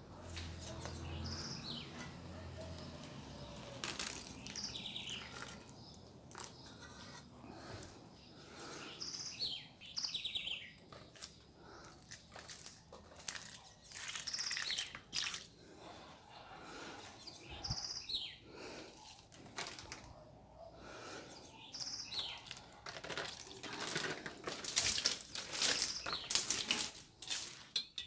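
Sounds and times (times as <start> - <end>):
birds chirping: 0.0 - 22.8, 23.4 - 26.9
water splashing onto plants: 3.6 - 6.5, 12.5 - 15.5, 23.0 - 27.7.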